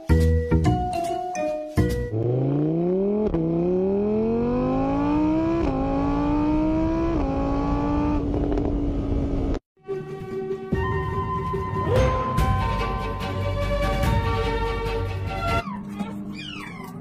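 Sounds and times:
motorbike engine accelerating: 2.1 - 9.6.

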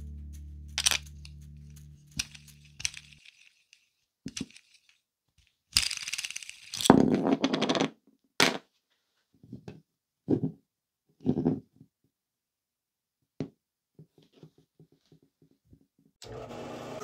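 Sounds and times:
threads rasping and scraping: 0.8 - 5.0
handling clicks and knocks: 2.1 - 5.0.

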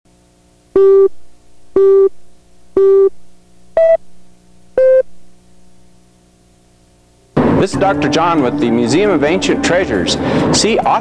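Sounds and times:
faint steady hum: 0.1 - 11.0
short electronic countdown beeps: 0.8 - 1.1, 1.8 - 2.1, 2.8 - 3.1, 3.8 - 4.0, 4.8 - 5.1.

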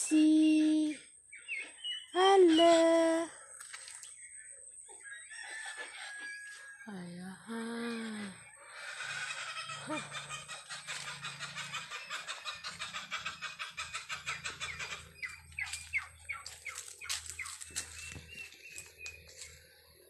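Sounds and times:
chickens clucking: 8.6 - 19.5.

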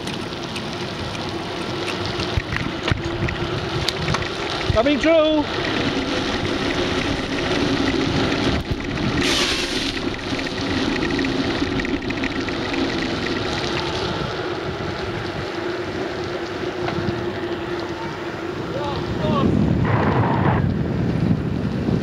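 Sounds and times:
bicycle tyres on wet road: 0.0 - 22.0
wind rushing: 2.4 - 22.0
water spray hiss: 9.2 - 10.1.

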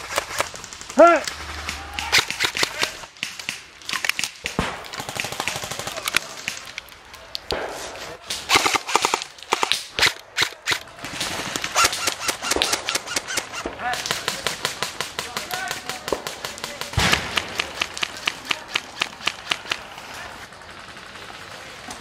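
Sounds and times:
airsoft rifle firing bursts: 8.5 - 19.9.

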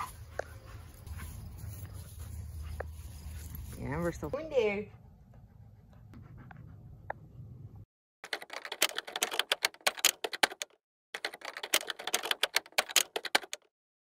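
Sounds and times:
typewriter-style typing clicks: 8.2 - 13.7.

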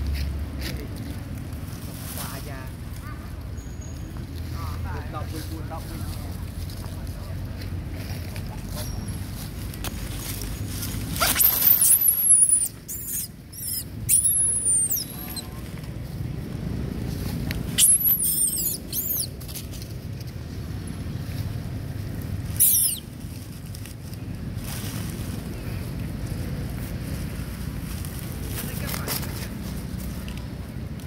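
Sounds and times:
young monkey squealing: 11.2 - 15.5, 17.7 - 19.4, 22.5 - 23.2.

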